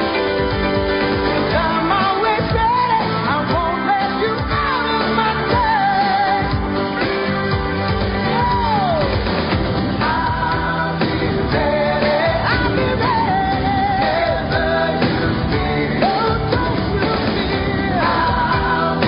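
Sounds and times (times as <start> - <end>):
pop song with band: 0.0 - 19.0
person singing: 1.4 - 7.4, 8.2 - 9.3, 9.9 - 19.0.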